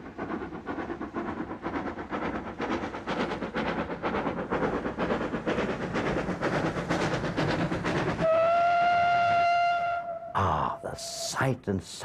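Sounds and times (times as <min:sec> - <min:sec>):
steam locomotive exhaust beating: 0:00.0 - 0:11.3
steam whistle: 0:08.2 - 0:10.8.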